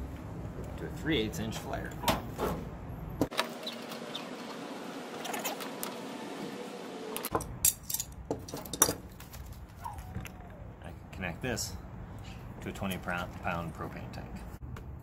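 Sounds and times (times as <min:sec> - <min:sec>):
metal tools clinking: 0:07.6 - 0:09.2.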